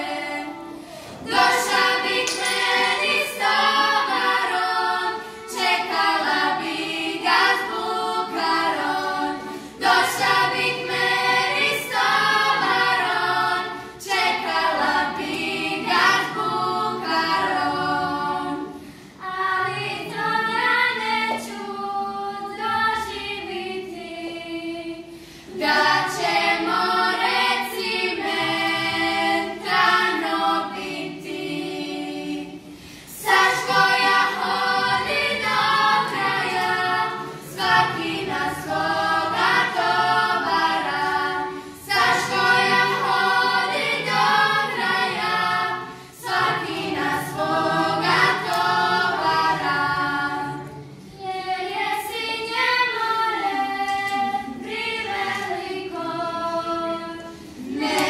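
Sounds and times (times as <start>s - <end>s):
girls singing in close harmony: 0.0s - 58.0s.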